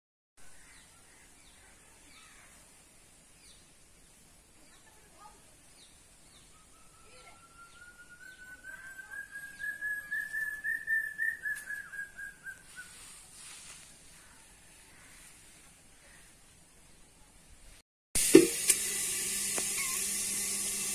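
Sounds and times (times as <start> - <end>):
faint bird chirps: 4.6 - 13.4.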